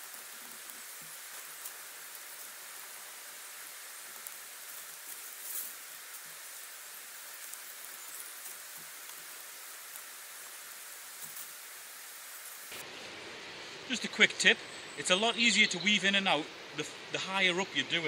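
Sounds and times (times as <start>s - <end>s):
steady outdoor hiss: 0.0s - 18.0s
willow rods rustling and scraping: 4.0s - 11.6s.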